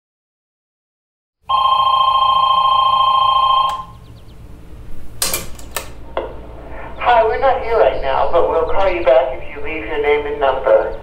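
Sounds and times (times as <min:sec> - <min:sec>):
landline telephone ringing: 0:01.5 - 0:04.0
answering machine clicks: 0:03.5 - 0:03.9.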